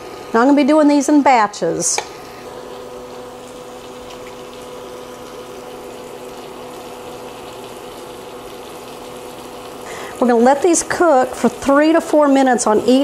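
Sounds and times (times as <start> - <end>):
steak sizzling in a skillet: 2.2 - 13.0.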